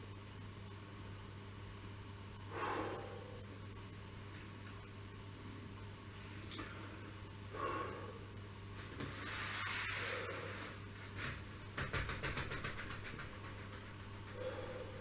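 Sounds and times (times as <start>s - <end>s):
low hum: 0.0s - 11.8s, 12.5s - 15.0s
man exhaling: 2.5s - 3.4s.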